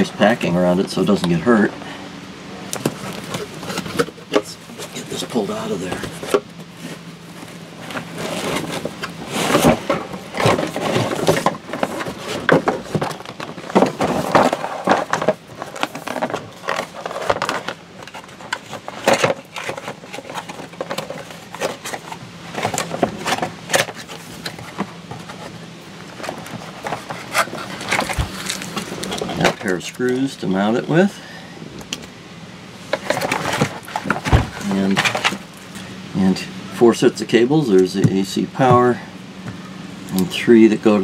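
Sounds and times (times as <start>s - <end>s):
cardboard and foam rustling: 2.8s - 31.1s, 32.8s - 35.7s.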